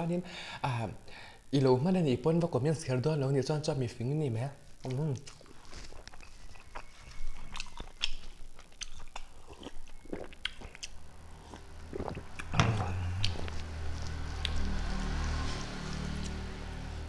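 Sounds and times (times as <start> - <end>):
low steady hum: 0.0 - 17.0
chewing and biting: 4.8 - 16.6.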